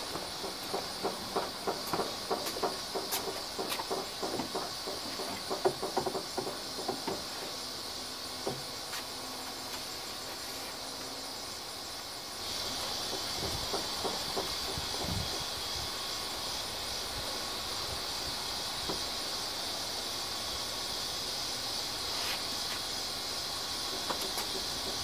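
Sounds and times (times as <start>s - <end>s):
footsteps on wooden boards: 0.0s - 7.6s, 8.4s - 9.9s
steady high hiss: 0.0s - 25.0s.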